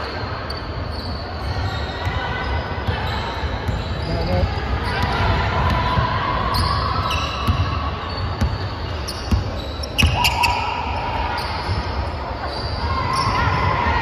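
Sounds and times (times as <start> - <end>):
sneaker squeaks: 0.0 - 14.0.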